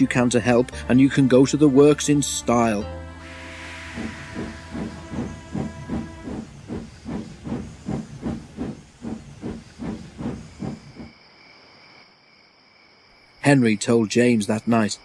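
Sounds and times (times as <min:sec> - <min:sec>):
steam hissing: 0:03.2 - 0:11.1
steam locomotive chuffing: 0:03.2 - 0:11.1.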